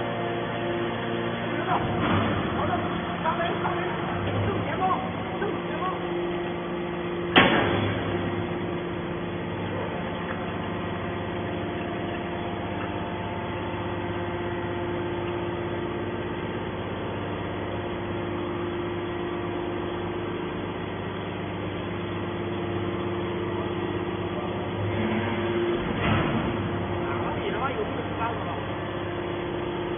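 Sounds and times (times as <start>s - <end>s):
hydraulic baler humming: 0.0s - 29.9s
loud metallic clank: 1.8s - 2.7s, 7.3s - 8.2s.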